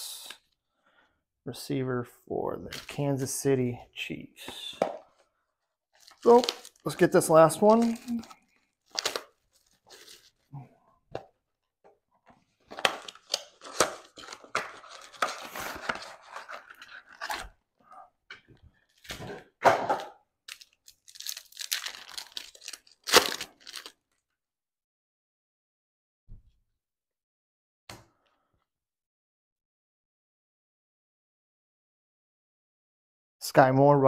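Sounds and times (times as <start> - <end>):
plastic wrap crinkling and tearing: 5.9 - 10.5, 12.6 - 17.5, 20.5 - 24.1
cardboard box and cards rustling: 6.0 - 10.5, 12.4 - 17.6.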